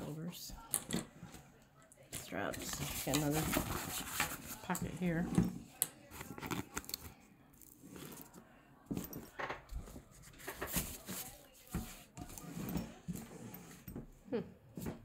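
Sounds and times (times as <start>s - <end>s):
light clicks and scrapes: 0.9s - 7.2s.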